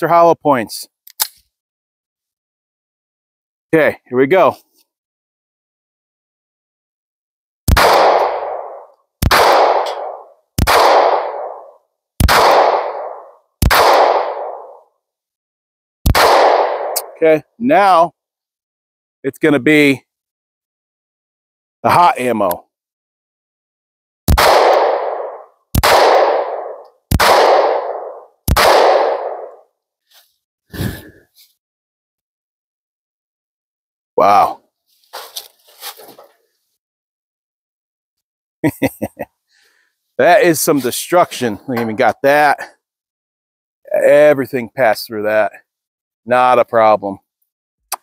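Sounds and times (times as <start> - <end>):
pistol shots: 7.7 - 14.8, 16.1 - 17.2, 24.3 - 29.6.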